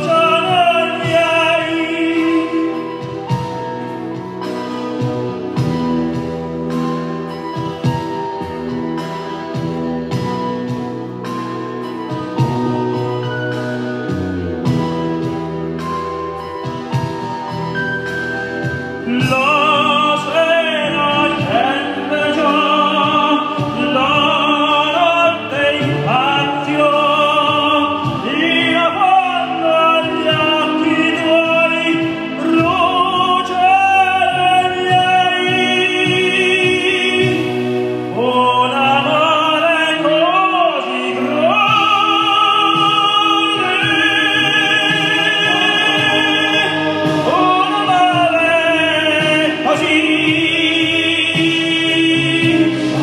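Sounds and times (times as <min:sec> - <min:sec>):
operatic tenor singing: 0:00.0 - 0:06.2, 0:18.5 - 0:53.0
instrumental accompaniment: 0:00.0 - 0:53.0.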